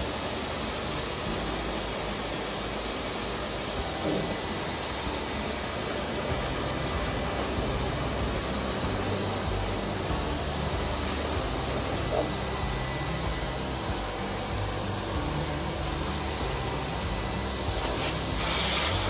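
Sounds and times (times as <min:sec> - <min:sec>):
dog dryer blowing air: 0:00.0 - 0:19.0.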